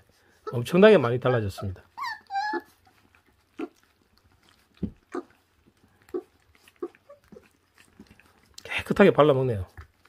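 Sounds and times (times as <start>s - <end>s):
puppy whining: 0.0s - 8.6s
wet chewing and tearing: 2.0s - 10.0s.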